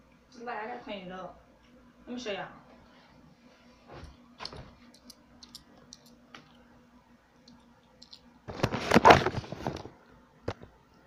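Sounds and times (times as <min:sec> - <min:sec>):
camera handling rustle and bumps: 0:08.5 - 0:10.6.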